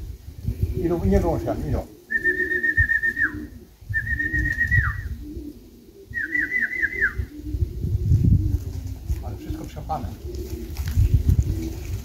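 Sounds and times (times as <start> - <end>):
pigeons cooing: 0.0 - 12.0
high trilled whistles: 2.1 - 5.2, 6.1 - 7.3.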